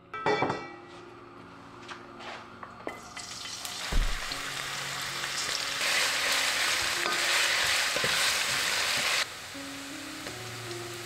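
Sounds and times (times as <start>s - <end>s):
food sizzling in a pan: 3.0s - 11.0s.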